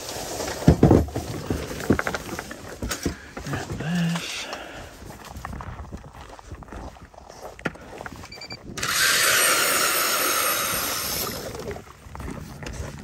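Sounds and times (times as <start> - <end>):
ice auger drilling into ice: 8.6 - 11.8.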